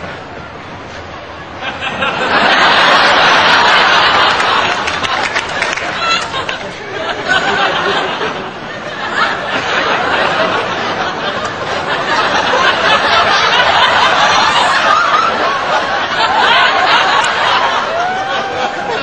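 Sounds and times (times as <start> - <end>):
audience laughter: 1.4 - 19.0.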